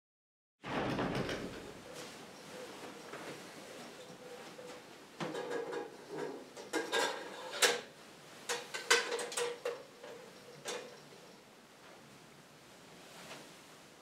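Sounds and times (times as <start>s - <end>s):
metal and glass clicks and clinks: 8.5s - 11.4s.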